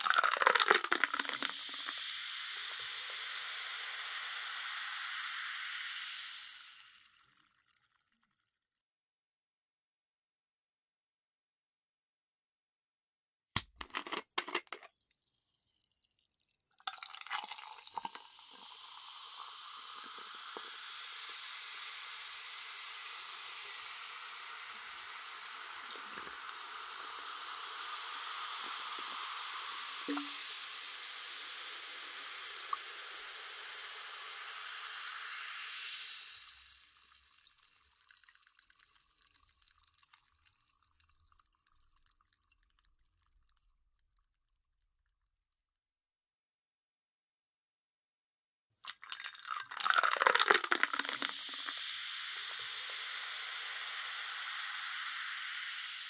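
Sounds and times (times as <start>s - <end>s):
bubbles crackling: 0.0s - 3.2s, 13.7s - 20.7s, 25.4s - 27.0s, 30.1s - 30.4s, 48.8s - 53.0s
soda pouring into a glass: 0.0s - 8.4s, 13.8s - 43.7s, 48.8s - 56.0s.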